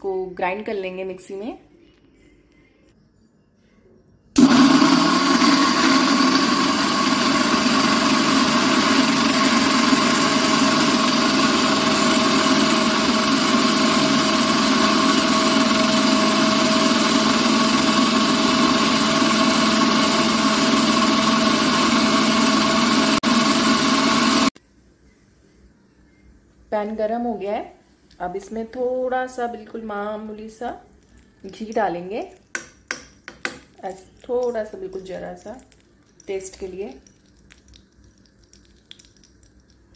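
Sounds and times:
mixer grinder motor whine: 0:04.4 - 0:24.6.

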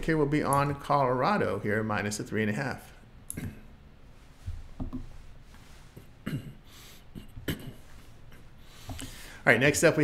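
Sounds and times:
man breathing close to microphone: 0:05.7 - 0:07.2, 0:07.8 - 0:09.4
man clearing throat: 0:06.2 - 0:08.6.

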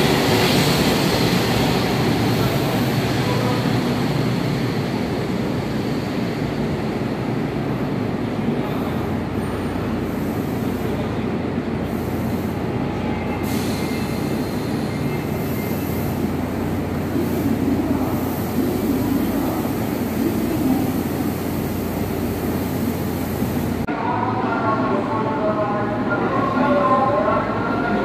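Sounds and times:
train rolling alongside platform: 0:00.0 - 0:28.0.

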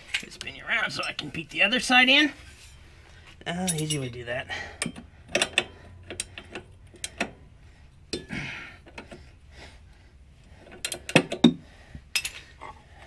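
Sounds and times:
hand tools clinking on metal: 0:00.1 - 0:01.4, 0:03.5 - 0:04.2
metal scrape: 0:02.3 - 0:03.0.

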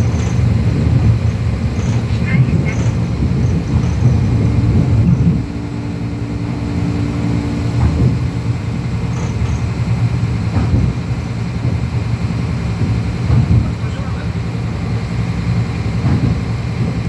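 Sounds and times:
train rumbling on track: 0:00.0 - 0:17.0
humming tone: 0:02.6 - 0:11.3.

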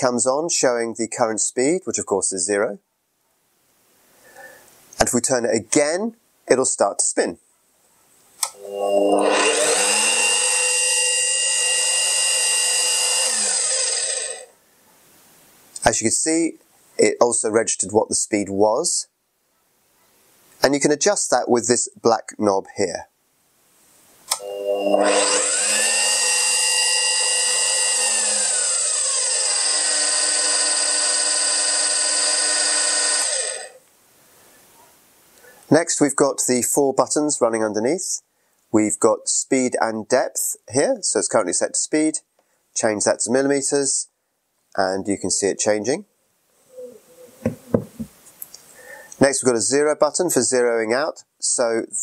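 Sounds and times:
drill press switch click: 0:08.4 - 0:08.6
drill press motor whine: 0:08.4 - 0:14.5, 0:24.3 - 0:33.8.

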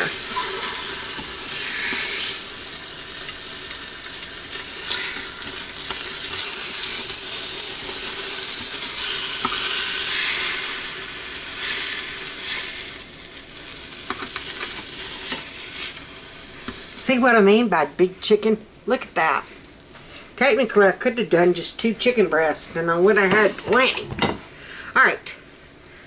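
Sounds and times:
chicken sizzling in a pot: 0:00.0 - 0:18.3.

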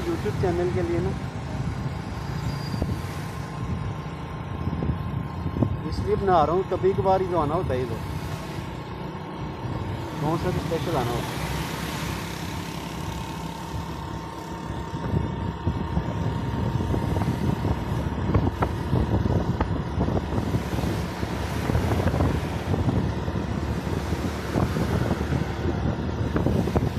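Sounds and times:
road and engine noise: 0:00.0 - 0:26.9
wind buffeting microphone: 0:00.7 - 0:06.2, 0:13.6 - 0:26.9.

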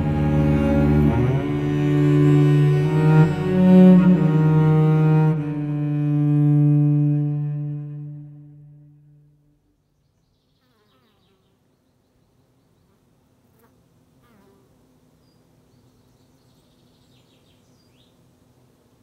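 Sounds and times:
faint high bird chirps: 0:09.8 - 0:13.0.

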